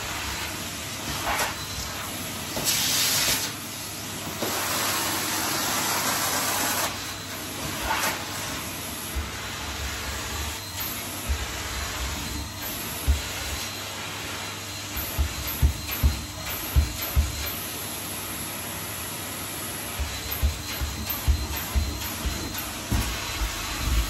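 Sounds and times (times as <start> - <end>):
vacuum cleaner running: 0.0 - 24.0
vacuum tool knocking on floor: 11.2 - 12.4, 13.0 - 13.7, 14.9 - 17.6, 20.0 - 24.0.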